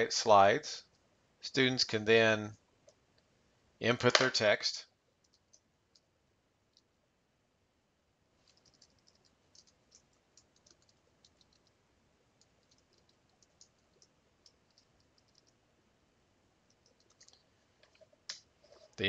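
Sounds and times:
typing on computer keyboard: 8.5 - 11.7, 12.4 - 15.6, 16.7 - 18.1.

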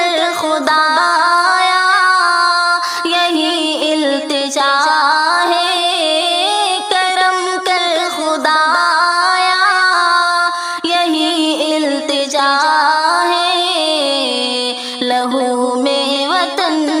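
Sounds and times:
woman singing: 0.0 - 17.0.

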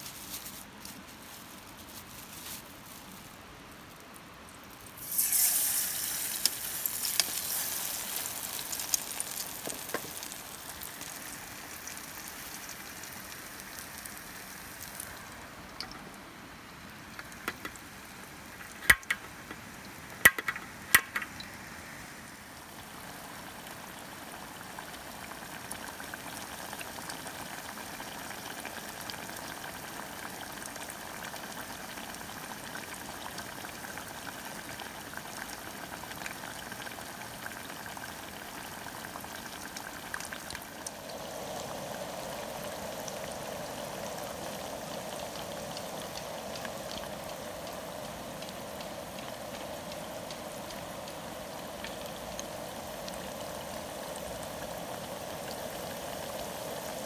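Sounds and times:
hot oil sizzling: 0.0 - 57.0.

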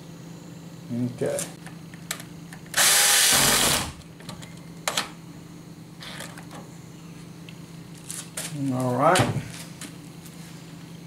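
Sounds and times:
power drill driving screw: 2.8 - 4.0.

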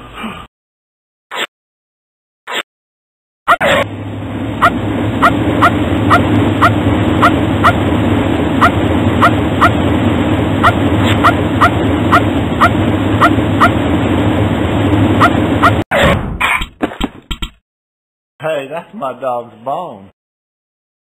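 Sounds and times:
engine running steadily: 3.6 - 15.8
small dog yelping: 10.6 - 13.8.

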